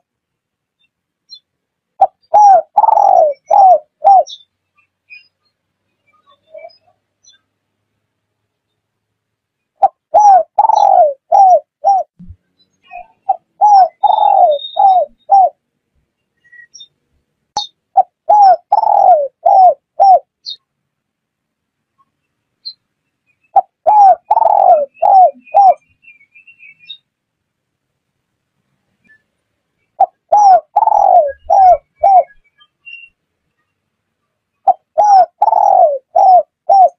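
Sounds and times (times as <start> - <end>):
dove cooing: 2.0 - 4.4, 9.8 - 12.2, 13.2 - 15.6, 18.0 - 20.3, 23.6 - 25.8, 30.0 - 32.4, 34.6 - 36.9.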